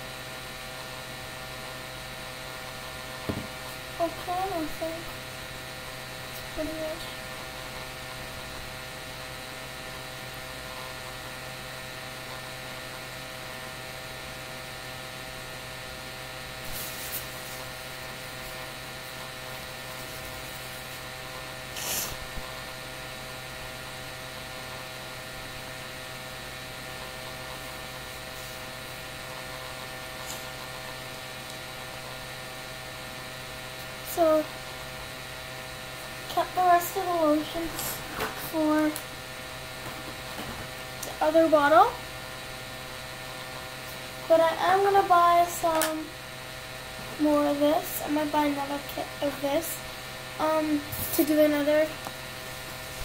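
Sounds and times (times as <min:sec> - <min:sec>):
electrical hum: 0:00.0 - 0:53.0
handling noises: 0:39.8 - 0:40.8.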